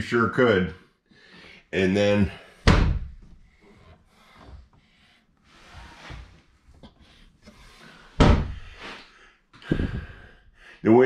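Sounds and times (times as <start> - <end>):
cabinet door handling: 2.6 - 3.2, 8.2 - 8.6.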